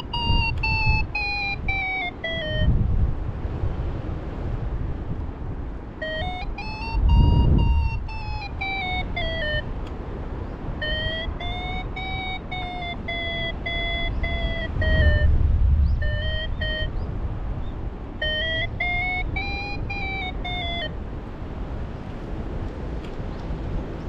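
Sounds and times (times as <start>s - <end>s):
variometer beeping: 0.0s - 2.8s, 6.0s - 9.9s, 10.8s - 17.1s, 18.2s - 21.0s
wind buffeting microphone: 0.0s - 24.0s.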